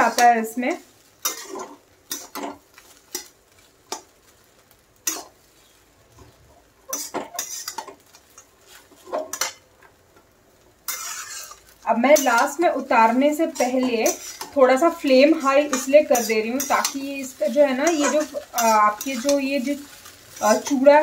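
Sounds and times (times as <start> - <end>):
metal spatula scraping a pan: 1.2 - 3.3, 5.0 - 5.8, 6.9 - 9.6, 10.9 - 21.0.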